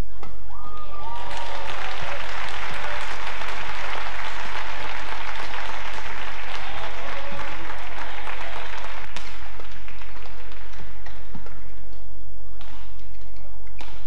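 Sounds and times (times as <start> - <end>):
crowd applauding: 0.9 - 11.7.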